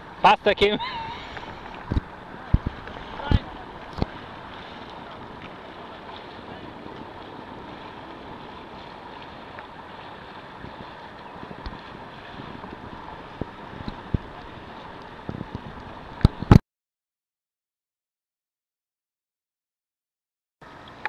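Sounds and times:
water lapping: 0.0 - 16.6
wind buffeting microphone: 1.0 - 16.6.

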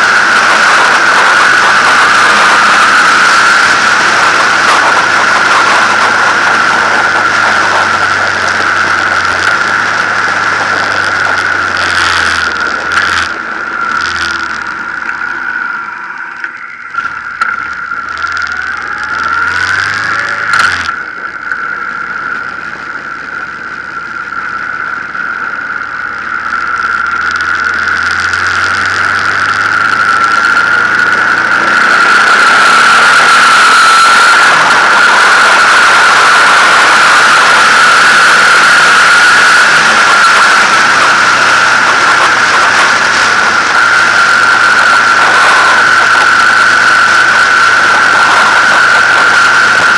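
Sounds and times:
wind rush: 0.0 - 16.4
motorcycle engine running: 0.0 - 49.9.

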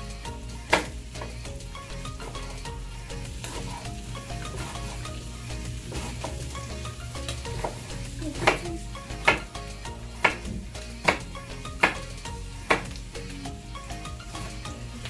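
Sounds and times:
seafood sizzling in a frying pan: 0.1 - 15.0
knife chopping on wooden board: 0.7 - 1.3, 7.5 - 9.5, 10.2 - 12.1, 12.7 - 13.0.

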